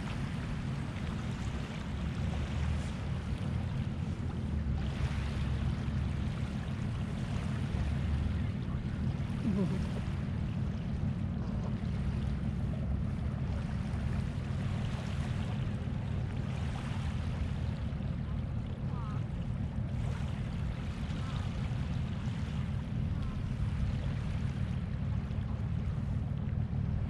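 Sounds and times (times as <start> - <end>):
wind rumble on microphone: 0.0 - 27.0.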